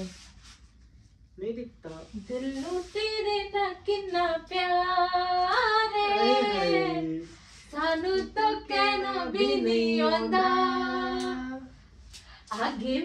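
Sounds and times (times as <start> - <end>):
woman singing unaccompanied: 2.3 - 7.2.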